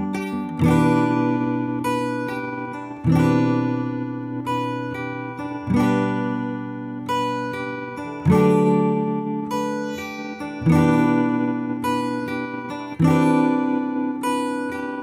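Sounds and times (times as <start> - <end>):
acoustic guitar strumming chords: 0.0 - 15.0.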